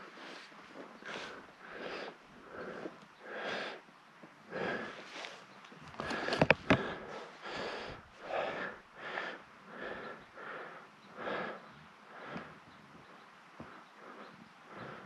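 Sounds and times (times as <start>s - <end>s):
person panting: 4.5s - 5.2s, 6.0s - 12.6s, 13.6s - 15.0s.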